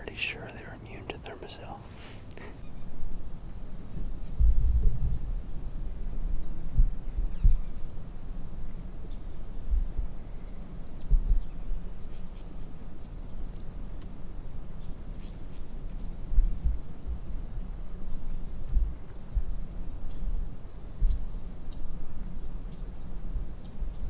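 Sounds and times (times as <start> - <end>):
small bird chirping: 5.9 - 8.2.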